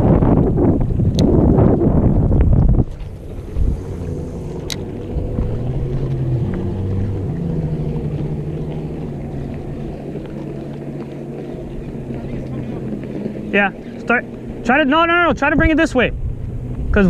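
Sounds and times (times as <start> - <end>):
motorboat engine humming: 0.0 - 17.0.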